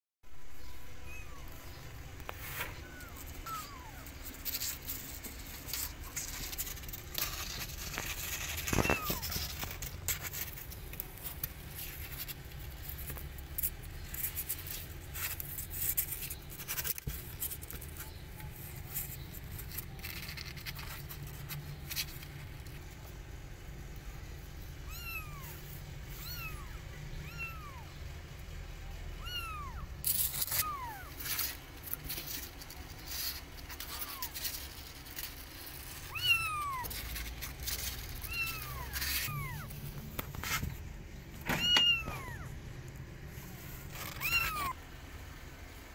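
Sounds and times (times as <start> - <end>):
kittens mewing: 0.7 - 11.3, 23.7 - 28.0, 29.1 - 42.7, 43.8 - 44.8
kittens scratching in cardboard box: 1.1 - 27.8, 29.2 - 44.8.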